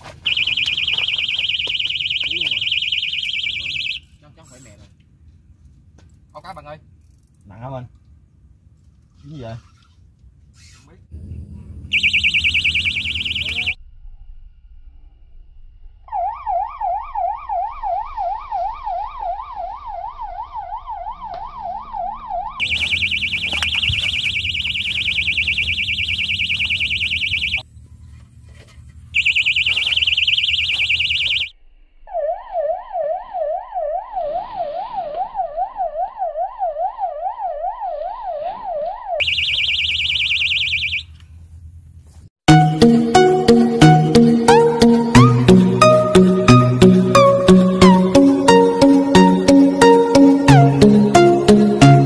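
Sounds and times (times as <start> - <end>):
electronic siren alarm: 0.2 - 4.2, 11.9 - 13.8, 16.1 - 27.6, 29.2 - 41.2, 42.5 - 52.0.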